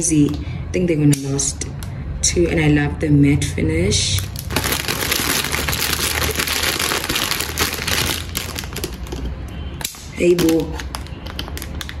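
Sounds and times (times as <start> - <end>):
plastic bag crinkling: 4.2 - 9.2, 10.4 - 12.0.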